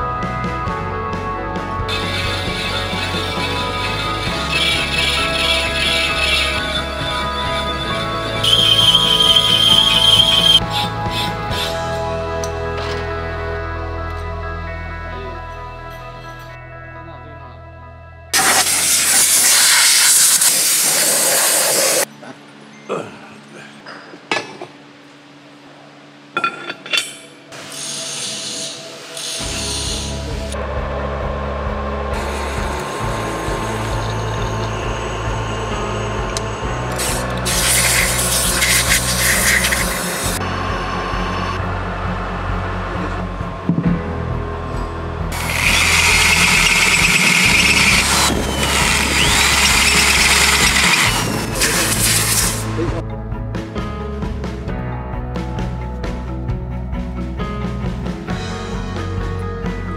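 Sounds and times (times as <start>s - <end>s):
drill press humming: 1.9s - 10.6s, 29.1s - 43.7s, 45.3s - 52.8s
cutter squealing on metal: 1.9s - 12.0s, 27.6s - 30.6s, 32.2s - 41.6s, 45.3s - 52.8s.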